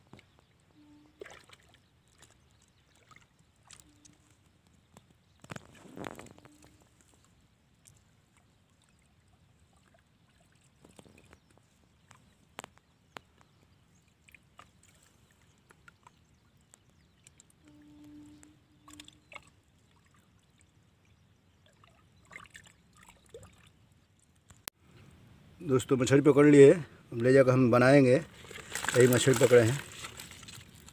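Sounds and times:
muddy water sloshing and splashing: 0.0 - 24.6, 28.0 - 30.9
brief low tone: 0.7 - 1.4, 3.8 - 4.3, 5.9 - 6.9, 17.6 - 19.4.

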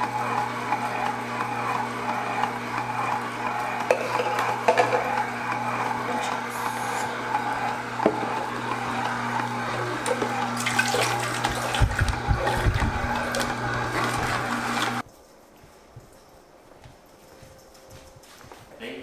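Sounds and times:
appliance motor humming: 0.0 - 15.0
dull knocks: 11.7 - 13.1.

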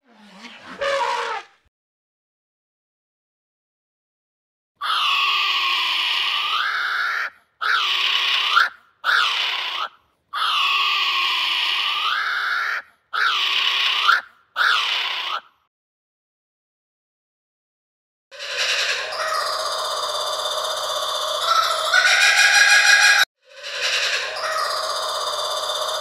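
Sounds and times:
animal calls rising in pitch: 0.0 - 1.6, 18.4 - 26.0.

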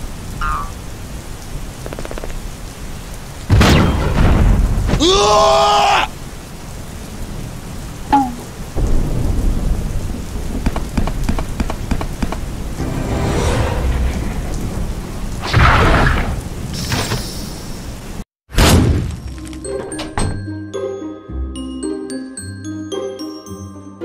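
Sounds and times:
rain: 0.0 - 18.3
low rolling thunder: 3.5 - 5.3, 7.2 - 16.8.

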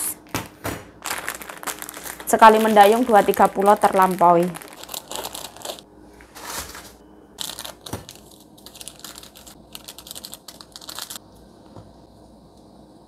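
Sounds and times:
plastic sachets crinkling: 1.0 - 5.8, 6.4 - 11.2.

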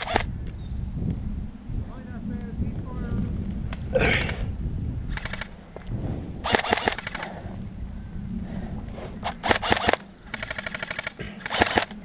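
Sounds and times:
airsoft rifle full-auto bursts: 0.0 - 0.3, 5.1 - 5.6, 6.4 - 7.3, 9.2 - 12.0.

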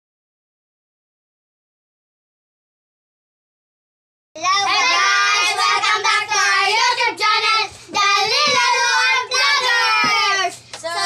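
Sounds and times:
young children singing: 4.4 - 11.0.

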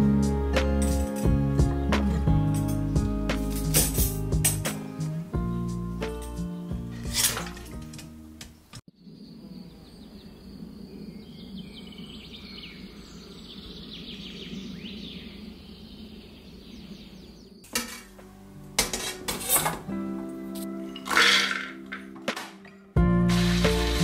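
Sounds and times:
metal basket clinking in pot: 3.5 - 4.6, 7.0 - 8.2, 17.7 - 18.2, 18.8 - 19.9, 20.6 - 22.8
birds chirping: 4.9 - 18.0.

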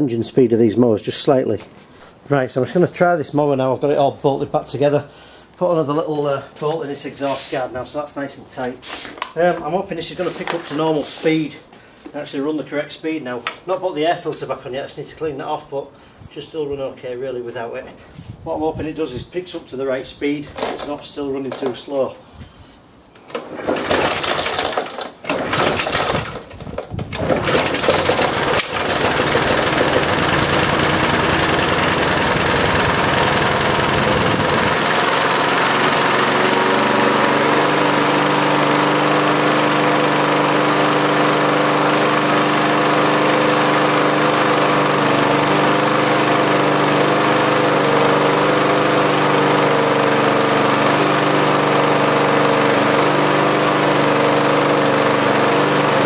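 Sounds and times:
lawnmower engine pull-start: 20.6 - 21.8, 23.2 - 56.0
lawnmower engine running: 23.3 - 56.0.

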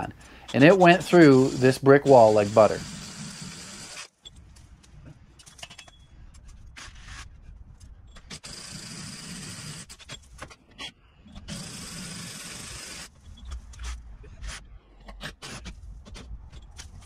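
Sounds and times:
hammer drill drilling into brick: 0.5 - 4.2, 8.3 - 10.1, 11.5 - 13.2.

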